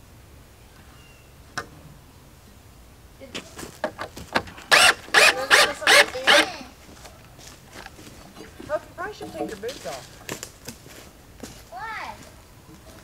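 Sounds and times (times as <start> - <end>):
drill click: 4.7 - 6.5
drill driving screw into wood: 4.7 - 6.6.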